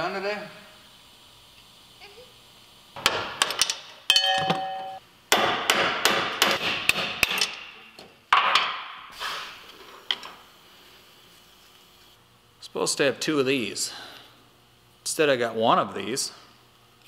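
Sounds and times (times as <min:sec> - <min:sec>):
hammer striking steel: 0:04.1 - 0:07.8.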